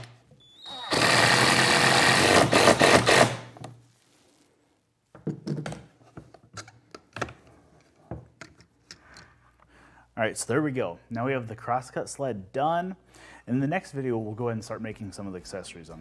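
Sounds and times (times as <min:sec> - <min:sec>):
cordless drill driving screw: 0:00.6 - 0:03.6.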